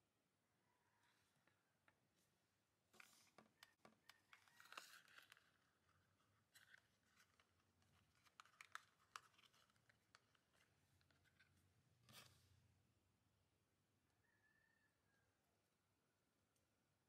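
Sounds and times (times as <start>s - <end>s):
fingers handling small toy box: 3.0s - 12.4s.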